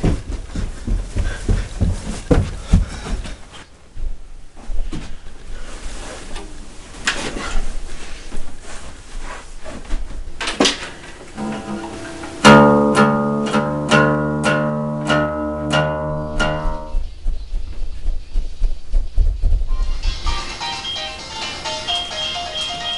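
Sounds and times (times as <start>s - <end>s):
guitar handling knocks and rustling: 9.9s - 17.0s
acoustic guitar strummed chords: 11.4s - 17.0s.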